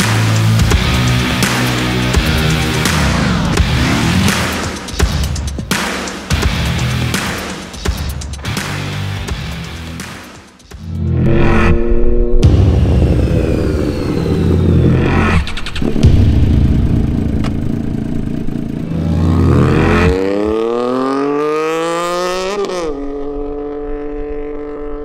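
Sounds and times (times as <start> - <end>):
motorcycle engine accelerating and passing: 11.0 - 25.0.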